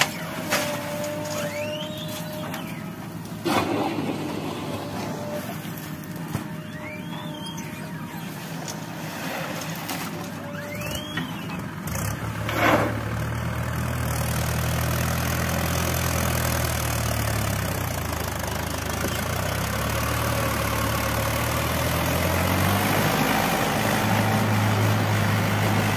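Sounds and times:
diesel tractor engine running: 0.0s - 25.9s.

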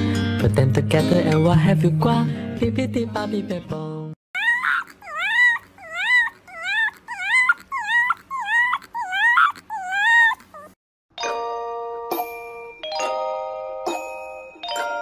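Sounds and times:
puppy howling: 4.4s - 10.8s.

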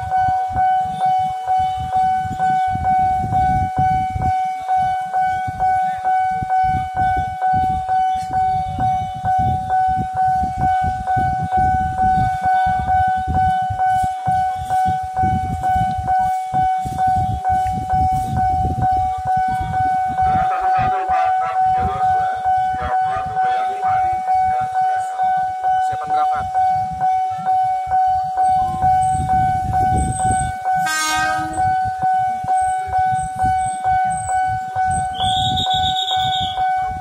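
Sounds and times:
level crossing bell ringing: 9.8s - 37.0s.

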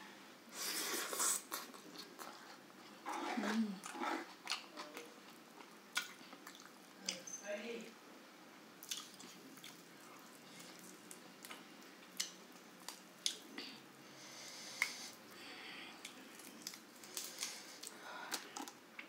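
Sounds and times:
close-up chewing: 1.2s - 7.2s, 8.8s - 13.5s, 16.0s - 19.0s.

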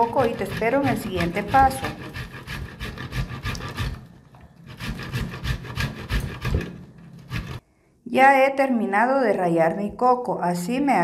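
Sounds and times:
coconut rasping on grater: 0.0s - 7.6s.

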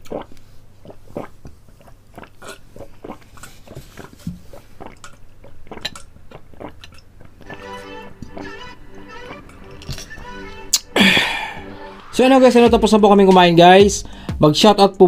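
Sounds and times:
person swallowing: 0.0s - 8.6s, 10.7s - 11.8s
wet mouth clicks and smacks: 4.8s - 7.6s.

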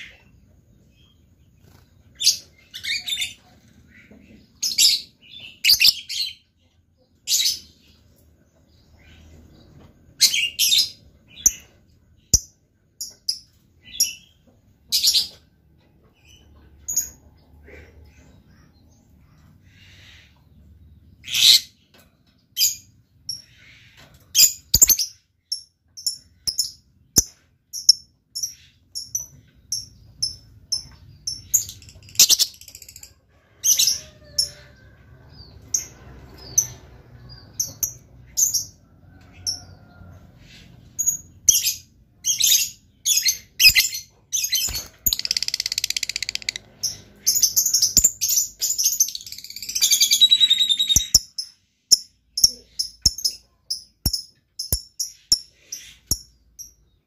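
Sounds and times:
bird rattling trill: 44.6s - 46.6s.

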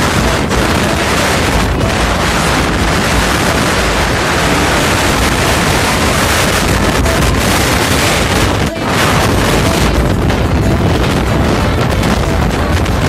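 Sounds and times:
road noise: 0.0s - 13.0s
scooter engine: 0.0s - 13.0s
wind buffeting microphone: 0.0s - 13.0s.

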